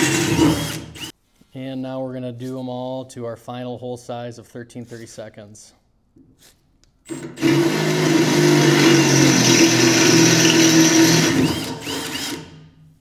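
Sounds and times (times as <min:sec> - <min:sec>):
cordless drill boring through steel: 0:00.0 - 0:01.1, 0:07.1 - 0:12.6.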